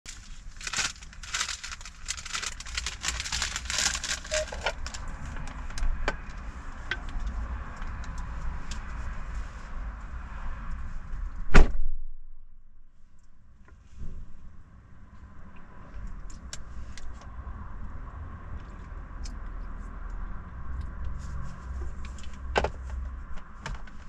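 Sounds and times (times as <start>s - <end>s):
car rumbling: 0.0s - 24.0s
loud thump: 11.5s - 12.2s.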